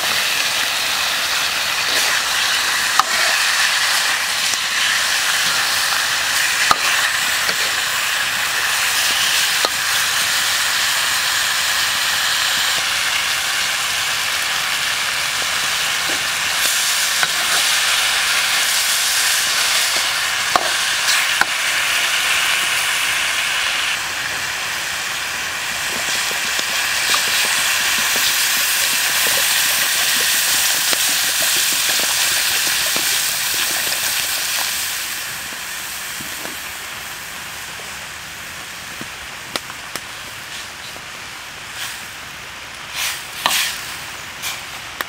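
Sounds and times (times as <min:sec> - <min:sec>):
meat sizzling in a wok: 0:00.0 - 0:45.0
water poured into wok: 0:25.7 - 0:35.4.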